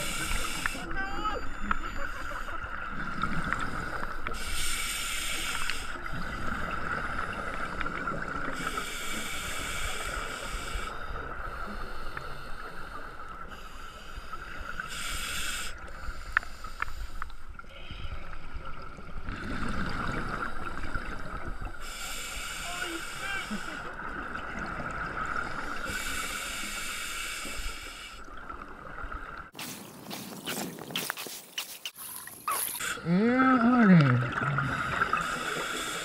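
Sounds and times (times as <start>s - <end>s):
diver breathing through regulator: 0.0s - 0.8s, 3.5s - 7.8s, 8.6s - 17.4s, 21.8s - 23.9s, 25.7s - 28.3s, 34.6s - 36.0s
underwater hiss: 0.0s - 0.8s, 3.5s - 17.4s, 19.5s - 24.0s, 25.6s - 28.3s, 34.7s - 36.0s
exhaled bubbles: 31.9s - 36.0s.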